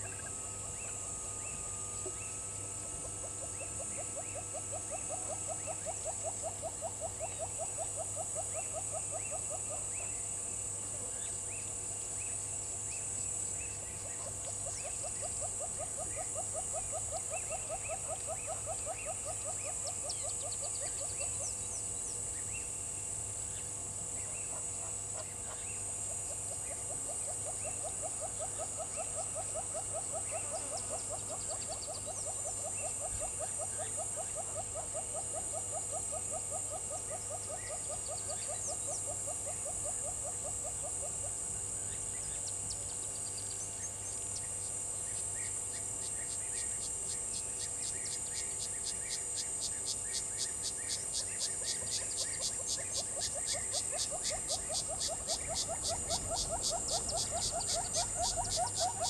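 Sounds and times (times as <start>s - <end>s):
insects shrilling: 41.9s - 59.0s.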